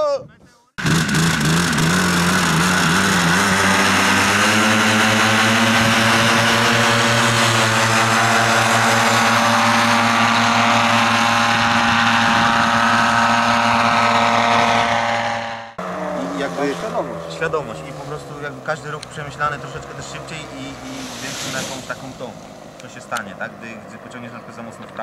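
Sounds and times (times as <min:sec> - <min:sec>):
paramotor engine and propeller: 0:00.8 - 0:25.0.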